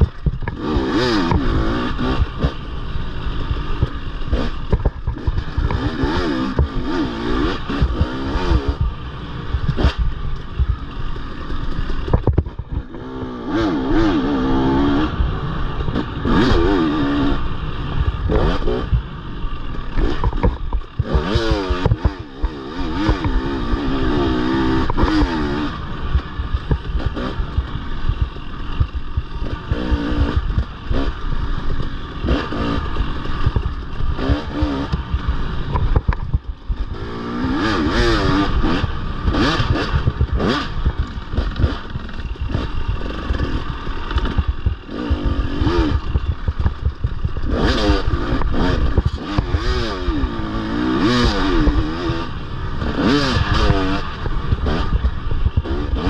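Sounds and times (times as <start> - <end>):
knocks and clatter: 0.0 - 1.7, 3.7 - 6.9, 9.6 - 13.0, 19.7 - 23.7, 24.5 - 37.0, 37.6 - 49.9
dirt bike engine revving: 0.0 - 56.0.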